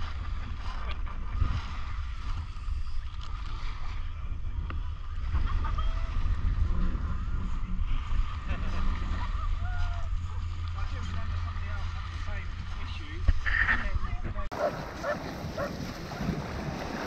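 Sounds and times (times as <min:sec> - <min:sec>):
wind buffeting microphone: 0:00.0 - 0:17.0
small waves on shingle: 0:14.5 - 0:17.0.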